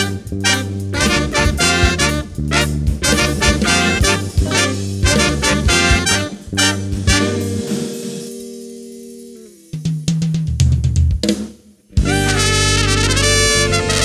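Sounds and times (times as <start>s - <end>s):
saxophones and trumpet: 0.0s - 7.9s, 12.0s - 14.0s
live band chord: 0.0s - 9.8s, 12.0s - 14.0s
drum kit break: 0.0s - 14.0s.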